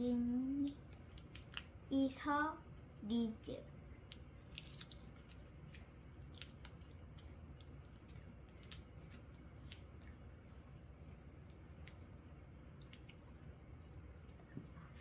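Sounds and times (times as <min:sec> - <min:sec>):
plastic sleeves clicking and crinkling: 0:04.0 - 0:10.3.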